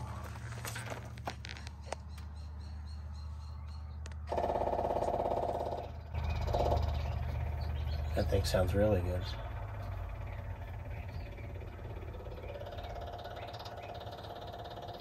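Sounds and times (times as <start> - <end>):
generator engine running: 4.0 - 15.0.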